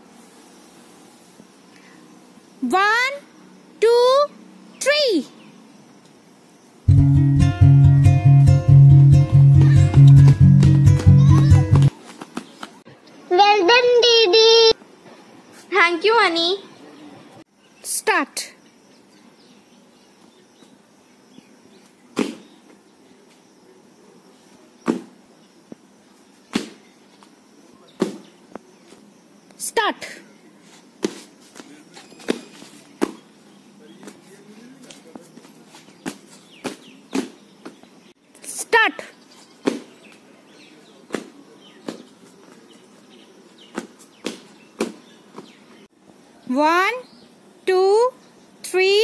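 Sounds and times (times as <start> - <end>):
sneaker footfalls on pavement: 9.6 - 12.8, 31.0 - 33.2, 34.0 - 37.9, 43.6 - 45.6
feet thudding on asphalt: 22.2 - 22.6, 24.8 - 25.8, 26.5 - 27.3, 28.0 - 28.3, 31.0 - 33.3, 34.0 - 37.9, 39.6 - 40.2, 41.1 - 42.6, 43.6 - 45.6
faint bird chirps: 31.7 - 34.8.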